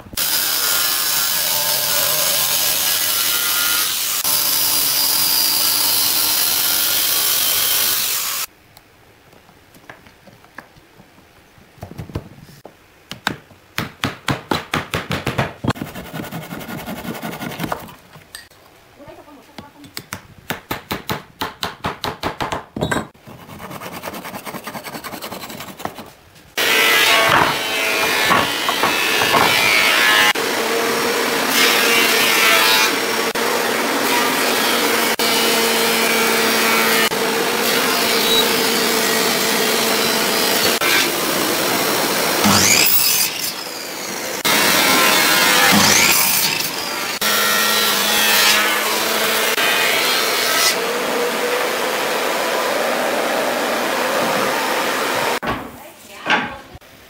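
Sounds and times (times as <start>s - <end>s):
handsaw cutting wood: 15.7s - 18.0s, 23.3s - 30.4s.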